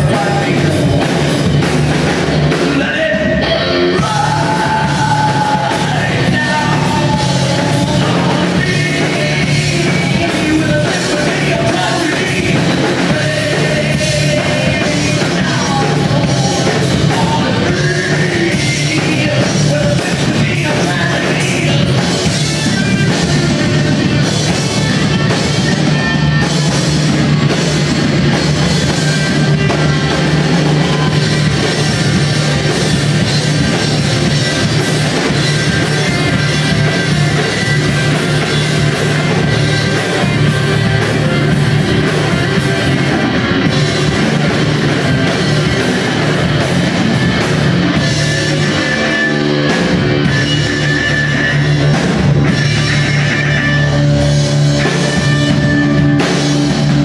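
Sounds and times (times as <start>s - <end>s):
live heavy rock band: 0.0s - 57.0s.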